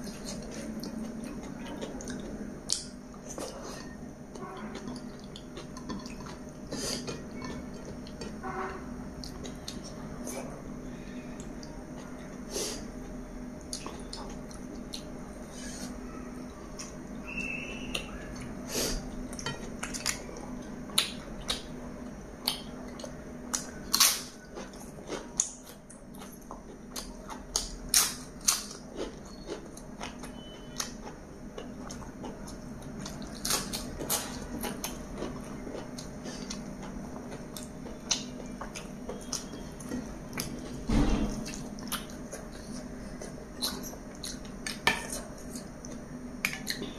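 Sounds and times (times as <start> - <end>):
chewing with lip smacks: 0.0 - 8.4, 13.6 - 15.2, 16.7 - 46.9.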